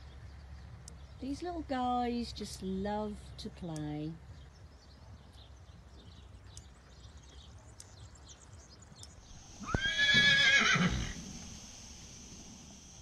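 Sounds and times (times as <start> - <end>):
light ticks: 0.5 - 1.5, 3.4 - 4.6, 5.3 - 9.2
horse whinnying: 9.5 - 11.2.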